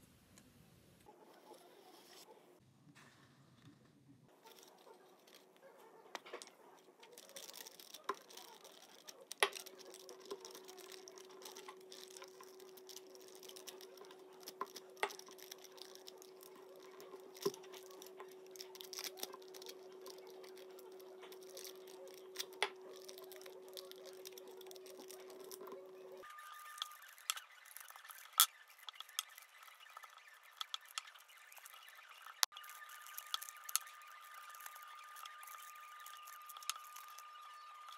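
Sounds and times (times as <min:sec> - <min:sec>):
paper rustling and crinkling: 0:06.2 - 0:37.9.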